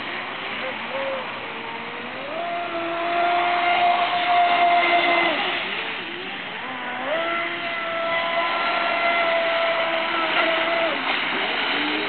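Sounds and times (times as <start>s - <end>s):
electric boat motor whining: 0.0s - 12.0s.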